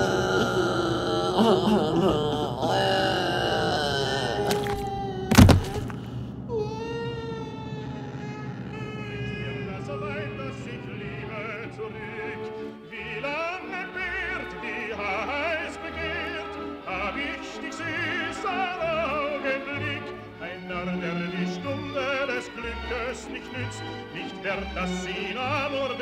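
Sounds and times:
operatic singing with vibrato: 0:00.0 - 0:06.0, 0:07.8 - 0:26.0
orchestral accompaniment: 0:10.8 - 0:26.0.

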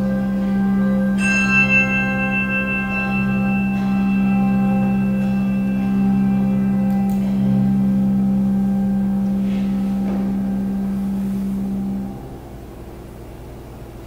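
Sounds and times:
low bass handbells sustaining: 0:00.0 - 0:14.0
handbell chord ringing: 0:00.4 - 0:07.9.

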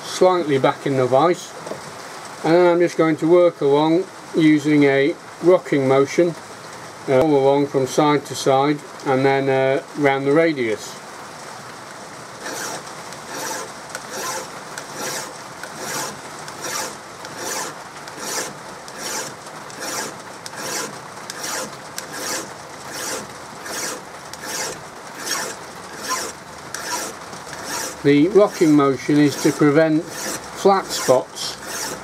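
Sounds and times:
hand file rasping on metal: 0:12.4 - 0:32.0.

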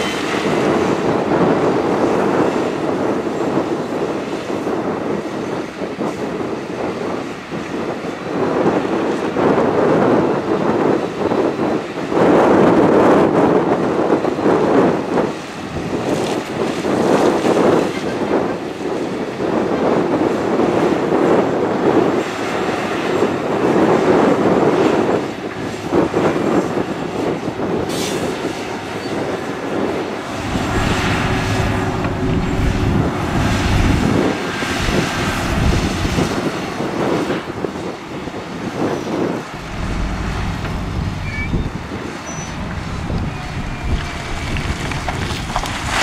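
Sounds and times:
dump truck engine rumbling: 0:00.0 - 0:09.4, 0:22.2 - 0:46.0
wheel loader diesel engine: 0:25.2 - 0:46.0
stones scraping and tumbling: 0:43.5 - 0:46.0.

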